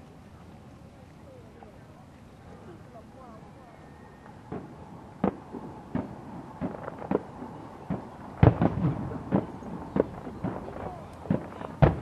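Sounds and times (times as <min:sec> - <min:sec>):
fireworks bangs and pops: 0:04.4 - 0:12.0.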